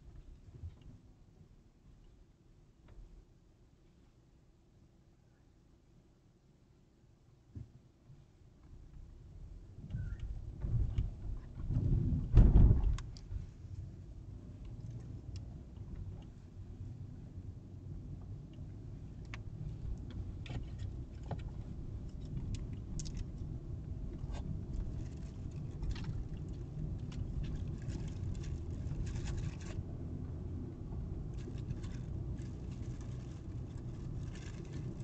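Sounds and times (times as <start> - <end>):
car cabin road and engine rumble: 0.0 - 35.0
light clicks and rattles: 19.2 - 23.4, 24.1 - 29.8, 31.3 - 35.0.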